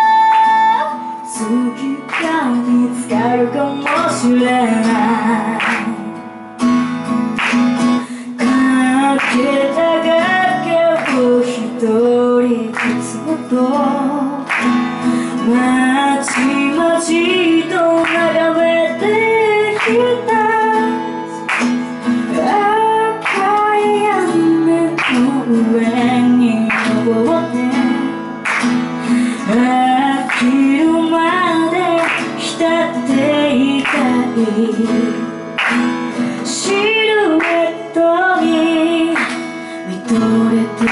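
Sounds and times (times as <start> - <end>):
woman singing: 0.0 - 6.3, 7.9 - 40.9
acoustic guitar strumming: 0.0 - 40.9.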